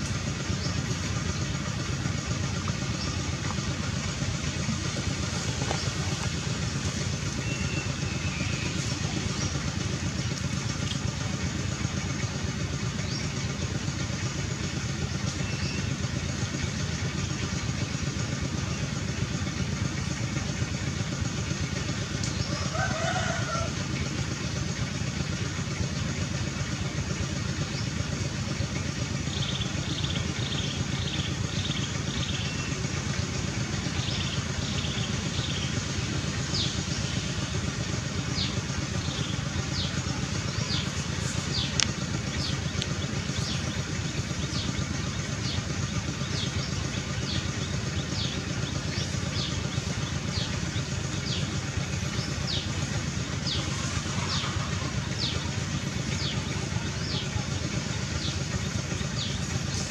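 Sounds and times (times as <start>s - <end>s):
distant traffic hum: 0.0s - 59.9s
bird chirping: 7.4s - 9.6s.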